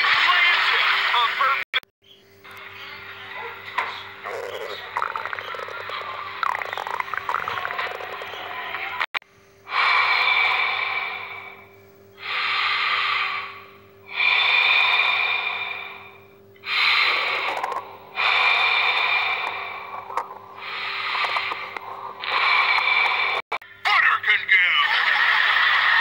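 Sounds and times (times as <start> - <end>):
man breathing heavily: 9.7 - 23.4.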